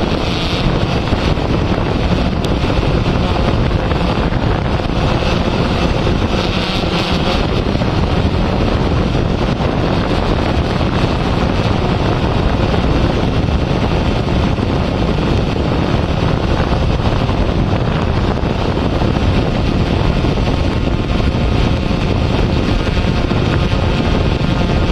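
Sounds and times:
drone propellers rushing: 0.0s - 24.9s
wind on microphone: 0.0s - 24.9s.

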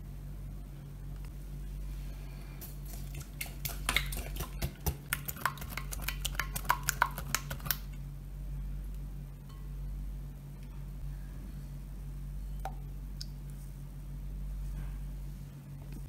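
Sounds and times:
whisk clicking against glass bowl: 3.2s - 7.8s.

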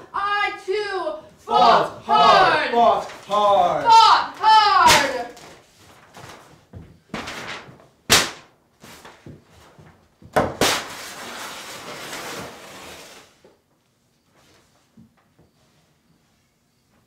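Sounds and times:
paper being slapped: 4.4s - 5.6s, 7.1s - 8.6s, 10.4s - 11.2s
paper ripping: 10.6s - 13.4s.

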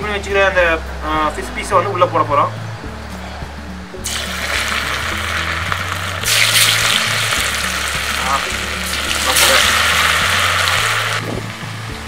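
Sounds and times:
fish sizzling in hot oil: 4.0s - 12.0s.

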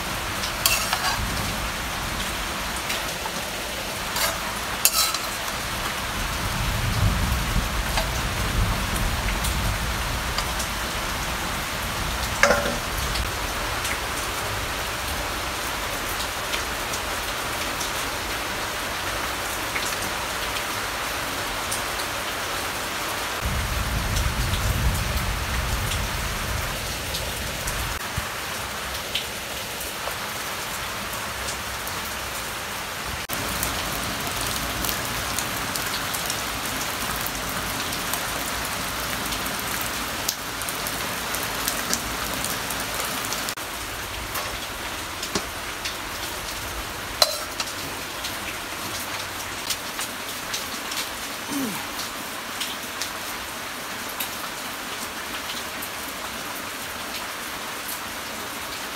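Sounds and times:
steady rain falling: 0.0s - 58.9s
clicks and drips: 12.4s - 13.3s, 47.2s - 47.9s.

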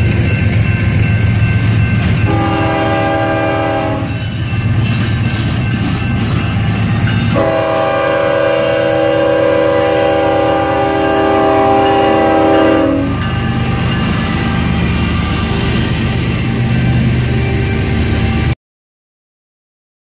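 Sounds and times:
low rumble of train: 0.0s - 18.6s
locomotive horn chord: 2.2s - 4.2s, 7.3s - 16.7s.

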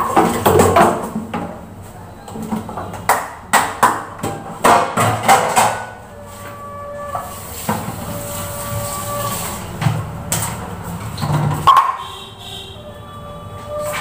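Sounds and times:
objects clattering in sink: 0.0s - 1.6s, 2.3s - 6.0s, 7.1s - 12.0s.

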